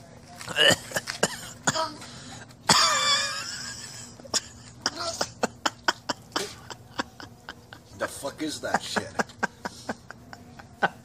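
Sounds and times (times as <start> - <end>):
person coughing: 0.5 - 2.0, 2.7 - 3.3, 4.4 - 5.4, 6.0 - 6.8.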